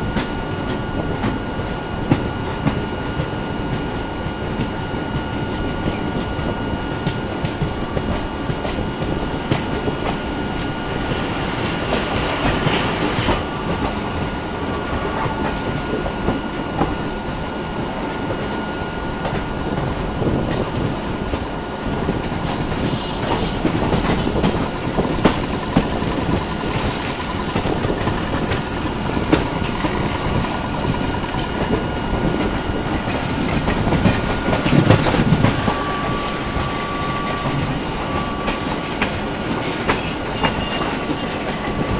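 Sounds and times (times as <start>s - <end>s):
train wheel rumble on rails: 0.0s - 41.9s
wheels clicking over rail joints: 22.2s - 41.9s.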